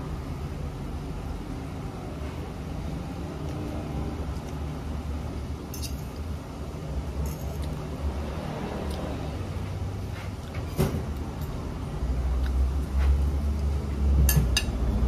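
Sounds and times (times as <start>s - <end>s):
kitchen equipment hum: 0.0s - 15.0s
fork clinking on plate: 5.7s - 6.1s.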